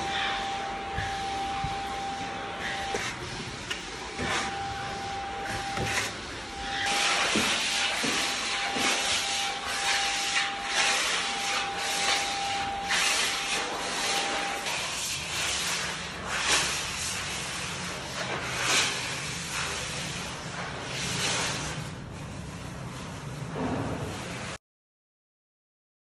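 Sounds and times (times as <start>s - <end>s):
trowel scraping filler on wood: 2.6s - 17.5s.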